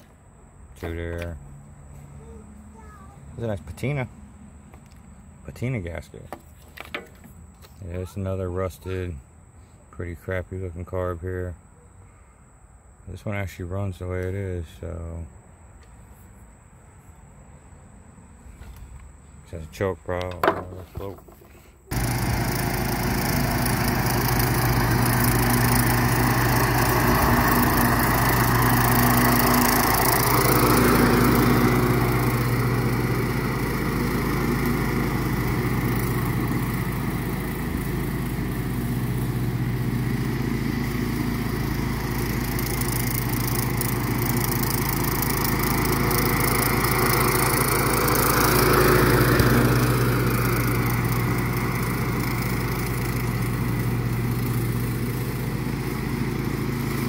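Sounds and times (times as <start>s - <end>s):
lawn mower engine running: 20.3s - 57.0s
mower blades cutting grass: 20.3s - 57.0s.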